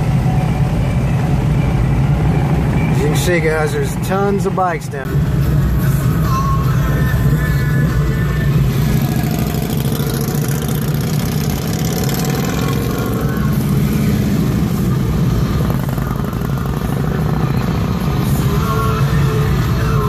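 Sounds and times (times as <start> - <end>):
motorcycle engines idling: 2.7 - 20.0
motorcycle engine revving: 6.9 - 20.0.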